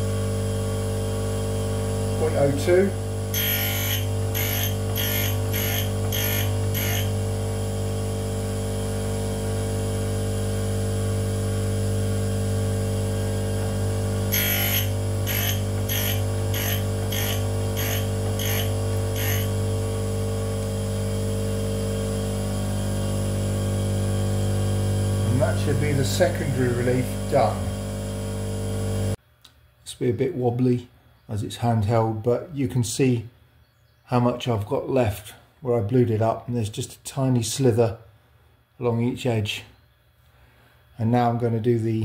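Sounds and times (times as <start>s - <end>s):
grinder motor humming: 0.0s - 29.2s
short grinding hisses: 14.3s - 19.6s.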